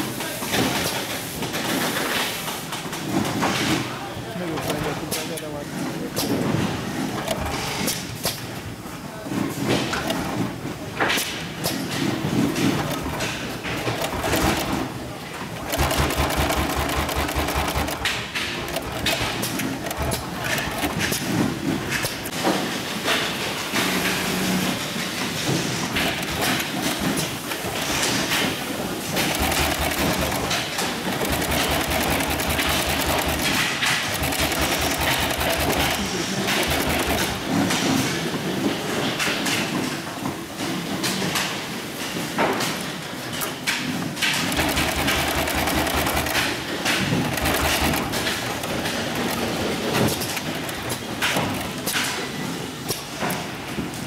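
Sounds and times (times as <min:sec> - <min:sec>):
workshop machine noise: 0:00.0 - 0:54.0
sewing machine stitching: 0:12.5 - 0:15.0, 0:15.6 - 0:22.3, 0:26.0 - 0:37.8, 0:44.2 - 0:51.8.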